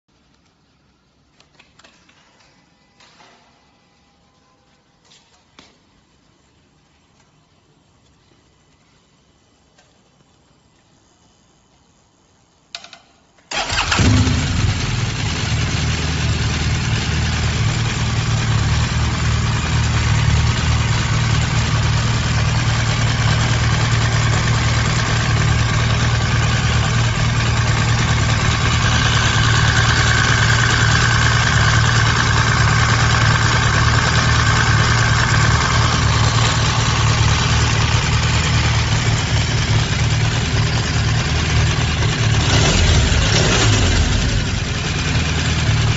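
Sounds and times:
motorcycle starter click: 0:12.8 - 0:14.5
motorcycle engine idling: 0:13.6 - 0:45.9.

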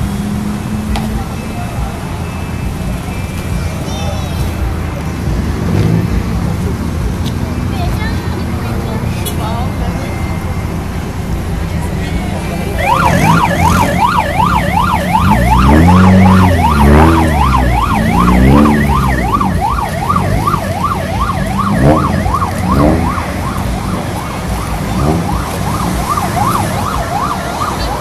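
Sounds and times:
electronic siren yelping: 0:12.7 - 0:28.0.

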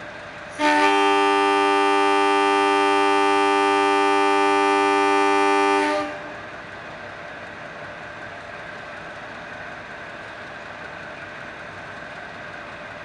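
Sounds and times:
locomotive air horn blast: 0:00.6 - 0:06.4.

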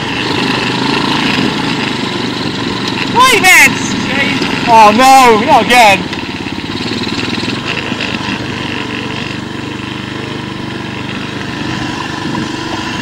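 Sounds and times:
quad bike engine running: 0:00.0 - 0:13.0.

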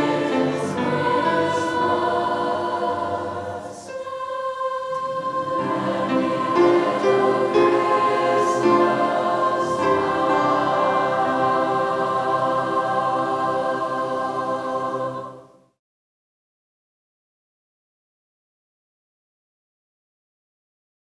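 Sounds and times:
grand piano accompaniment: 0:00.0 - 0:04.1, 0:04.9 - 0:15.2
choir singing held chords: 0:00.0 - 0:15.8.

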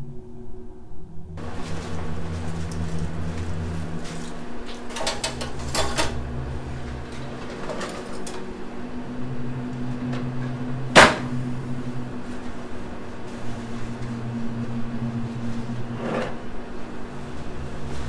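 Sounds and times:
steady low hum: 0:00.0 - 0:18.0
sunflowers rustling: 0:01.4 - 0:05.0, 0:11.3 - 0:18.0.

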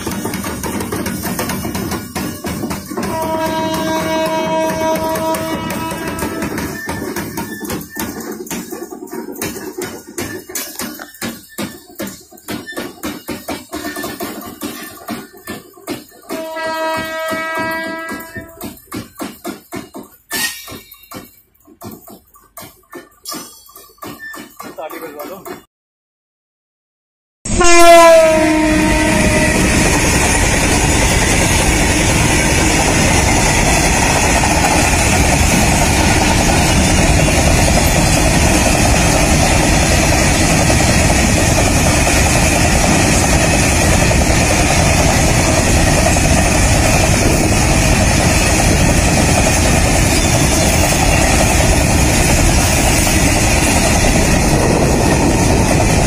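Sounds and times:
freight train rolling past: 0:00.0 - 0:25.6, 0:27.5 - 0:56.0
wheel-on-rail noise: 0:00.0 - 0:25.6, 0:28.5 - 0:56.0
locomotive horn: 0:03.0 - 0:06.6, 0:16.3 - 0:18.6, 0:27.5 - 0:30.2.

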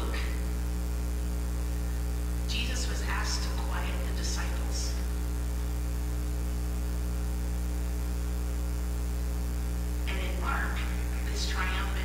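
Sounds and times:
woman speaking: 0:00.0 - 0:00.5, 0:02.5 - 0:05.1, 0:10.1 - 0:12.0
electrical mains hum: 0:00.0 - 0:12.0.

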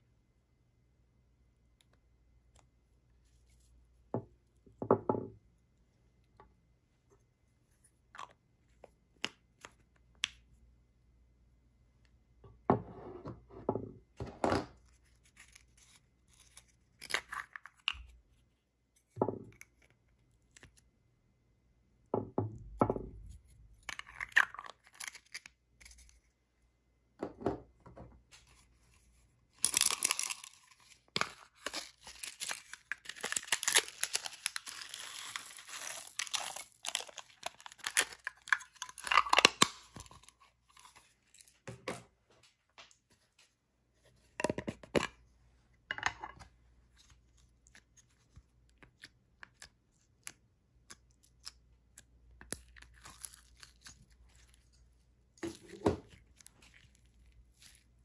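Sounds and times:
slime crackling and rustling: 0:28.5 - 0:41.6, 0:52.5 - 0:58.0.

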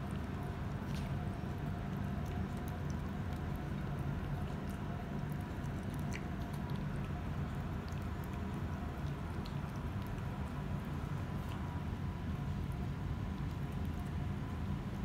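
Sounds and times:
cat chewing: 0:00.0 - 0:15.0
steady low hum: 0:00.0 - 0:15.0.

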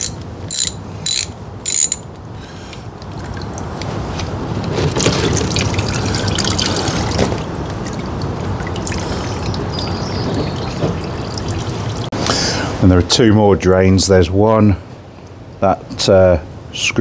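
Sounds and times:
coolant trickling into drain pan: 0:04.7 - 0:12.2.

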